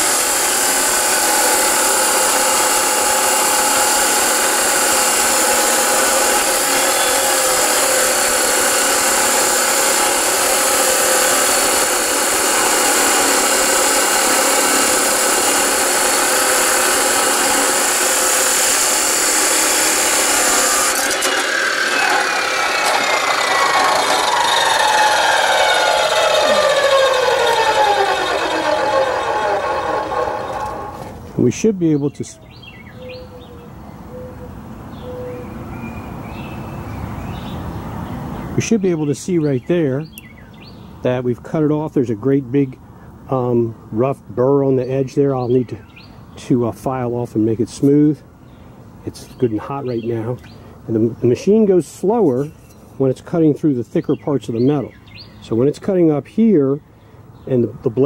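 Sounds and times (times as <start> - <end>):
cutoff saw grinding metal: 0.0 - 31.3
motor whine spinning down: 0.0 - 31.3.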